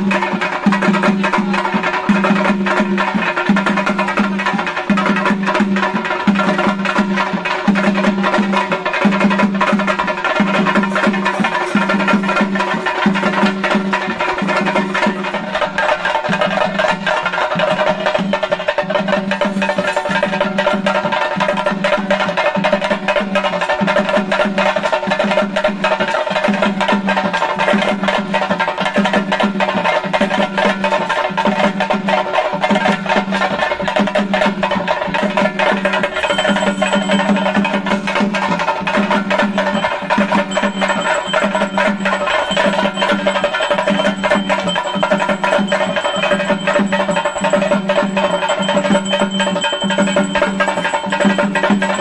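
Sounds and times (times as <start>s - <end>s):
fast drumming: 0.0s - 52.0s
sustained ringing tones: 36.0s - 38.1s, 39.3s - 52.0s.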